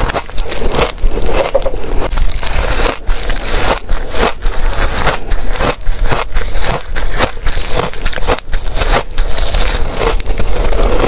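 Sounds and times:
crunching and chewing frost: 0.0 - 11.0.

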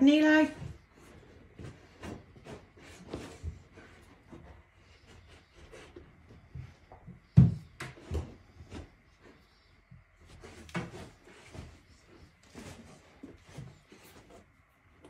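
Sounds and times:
dog scuffling on rug: 0.1 - 14.6
dull knocks and bumps: 5.3 - 9.4.

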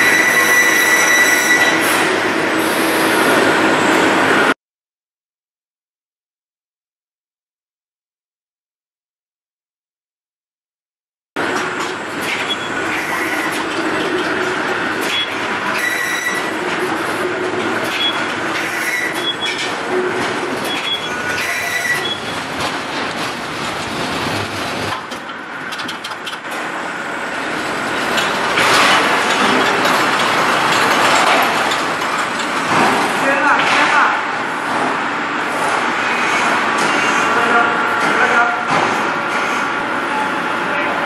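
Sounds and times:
rail cart rolling with rumble: 11.4 - 41.0
wheels squealing: 15.1 - 16.6, 18.0 - 22.6.

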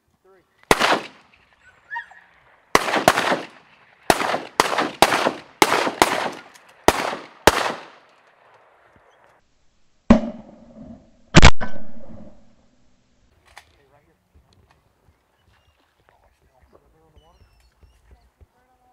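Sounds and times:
shotgun shots echoing: 0.7 - 1.6, 2.7 - 8.1, 11.4 - 12.0.

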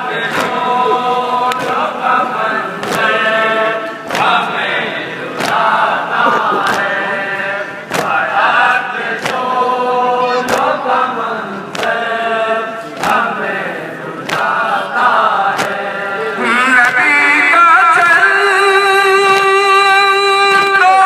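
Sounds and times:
voices chanting a lament: 0.0 - 21.0
chest-beating slaps: 5.4 - 7.0, 7.9 - 8.2, 9.2 - 9.5.

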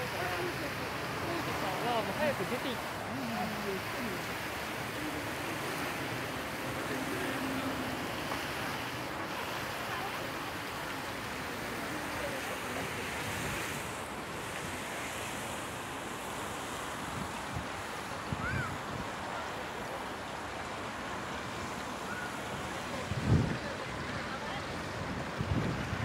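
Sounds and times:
wind blowing across microphone: 12.8 - 19.4, 21.6 - 26.0.

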